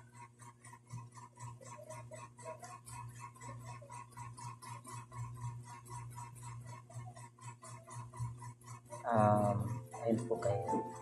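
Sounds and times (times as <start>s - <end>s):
rapid even ticking: 0.0s - 11.0s
steady low hum: 0.0s - 11.0s.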